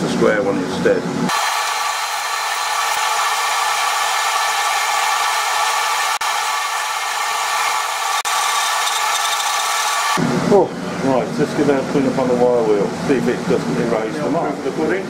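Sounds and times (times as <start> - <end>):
file rasping on steel: 7.6 - 10.1.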